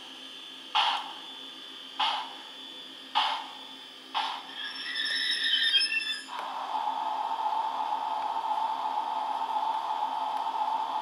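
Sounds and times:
locomotive whistle: 0:04.5 - 0:06.3.

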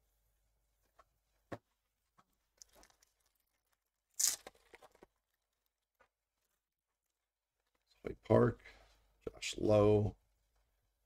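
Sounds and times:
wrapper ripping open: 0:04.1 - 0:05.4.

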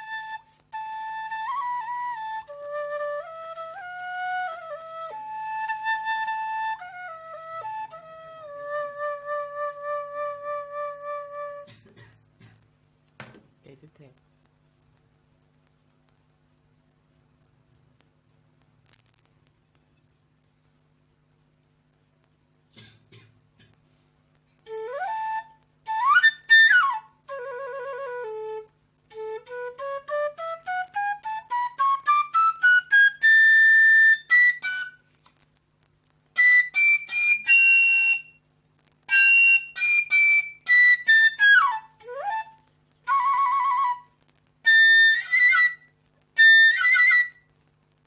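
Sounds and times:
bamboo flute playing: 0:00.0 - 0:11.7, 0:24.6 - 0:35.1, 0:36.3 - 0:38.4, 0:39.0 - 0:47.5.

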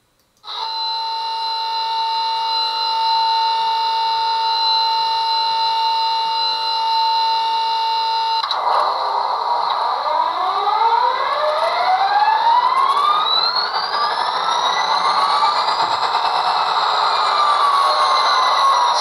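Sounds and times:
steady multi-tone sound: 0:08.2 - 0:19.0.

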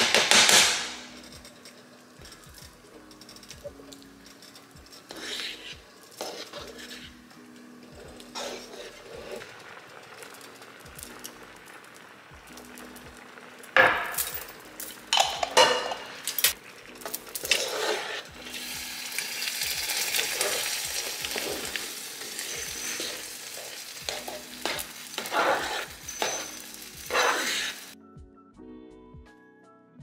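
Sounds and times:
sauce sizzling: 0:02.6 - 0:28.0
spoon scraping through sauce in skillet: 0:04.0 - 0:11.5, 0:16.6 - 0:28.0.

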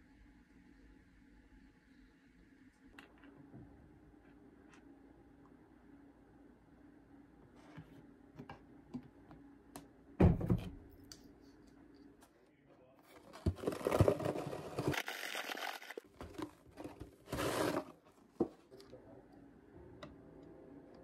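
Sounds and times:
thump: 0:10.2 - 0:10.8
rustling and crinkling: 0:13.0 - 0:18.8.

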